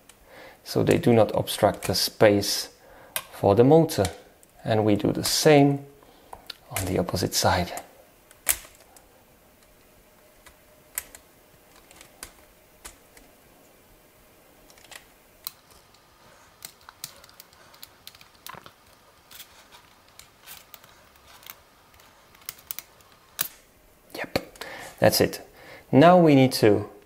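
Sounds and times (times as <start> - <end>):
plastic parts clicking: 7.7 - 13.3, 14.6 - 23.6.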